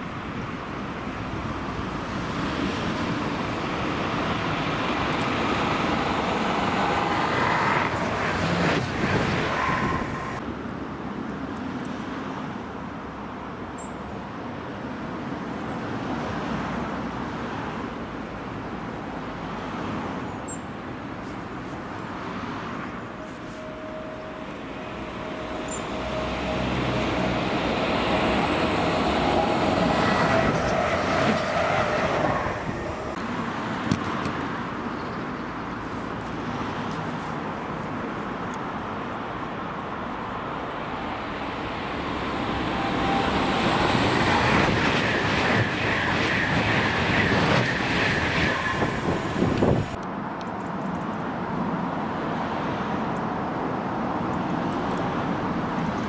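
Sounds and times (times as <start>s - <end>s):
passenger train passing: 0.0s - 11.2s, 20.8s - 34.8s, 35.7s - 50.0s
road traffic rumble: 0.0s - 56.0s.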